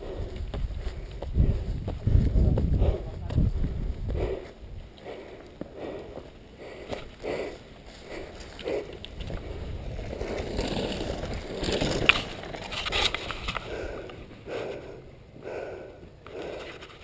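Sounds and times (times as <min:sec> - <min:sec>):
camera rubbing on riding gear: 0:06.8 - 0:14.9, 0:16.3 - 0:17.0.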